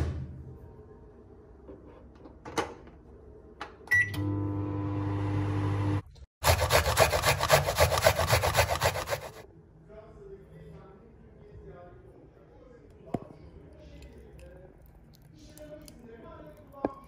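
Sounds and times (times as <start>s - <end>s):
microwave start beep: 3.9s - 6.0s
microwave oven humming: 3.9s - 6.1s.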